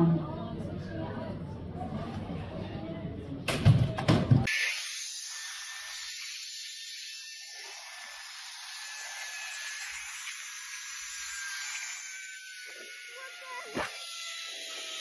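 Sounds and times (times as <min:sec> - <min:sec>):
zipline pulley hissing: 0:09.0 - 0:15.0.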